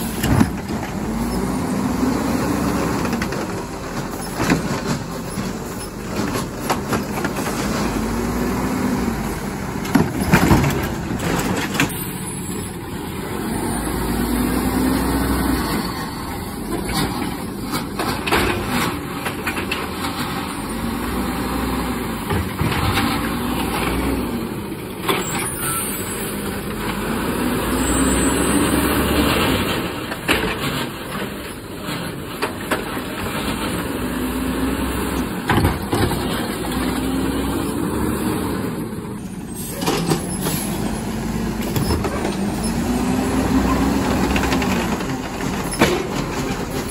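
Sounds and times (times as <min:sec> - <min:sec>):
garbage truck engine revving: 0:00.0 - 0:46.9
knocks and clatter: 0:09.8 - 0:12.0, 0:22.2 - 0:24.0, 0:35.4 - 0:37.0, 0:44.0 - 0:46.9.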